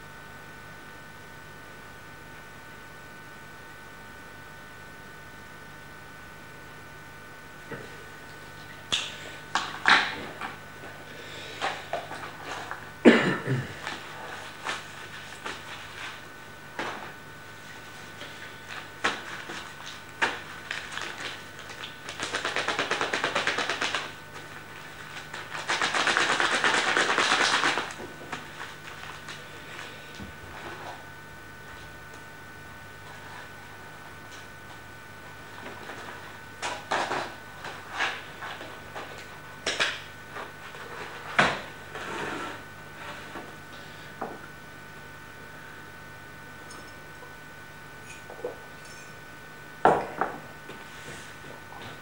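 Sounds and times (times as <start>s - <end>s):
objects knocking on a desk: 49.9s - 50.4s.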